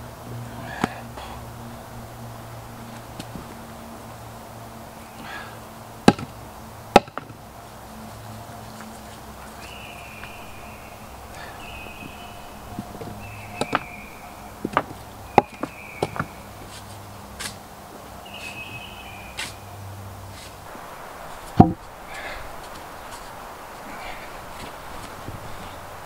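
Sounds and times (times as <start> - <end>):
tool knocking wooden post: 6.0 - 6.3, 7.0 - 7.3.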